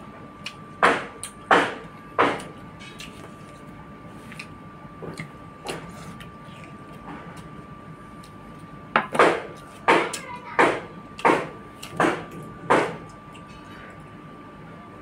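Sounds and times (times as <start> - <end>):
open-mouthed chewing: 2.8 - 7.6.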